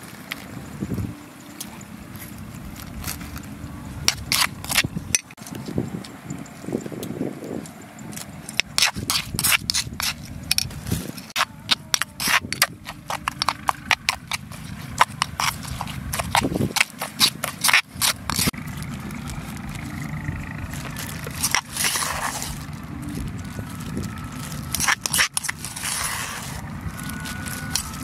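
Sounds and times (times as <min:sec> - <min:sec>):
metal spoon scraping stone mortar: 0:04.0 - 0:05.6, 0:08.5 - 0:20.1, 0:20.7 - 0:28.0.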